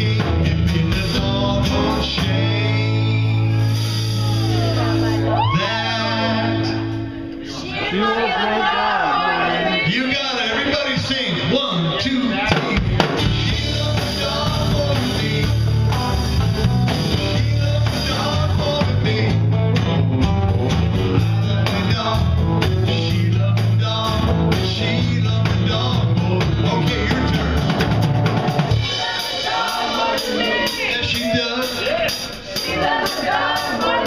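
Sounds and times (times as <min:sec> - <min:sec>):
electric bass line: 0:00.0 - 0:07.5, 0:12.8 - 0:29.2
live blues-rock band: 0:00.0 - 0:07.6, 0:10.9 - 0:34.0.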